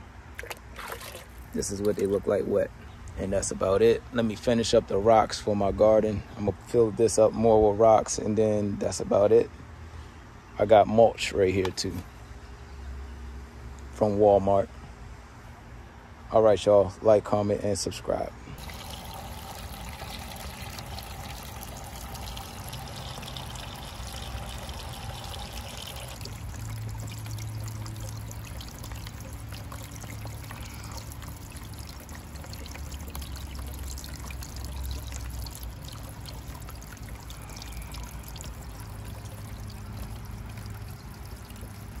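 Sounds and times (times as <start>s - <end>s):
fountain water splashing and trickling: 0.0s - 2.6s, 18.6s - 42.0s.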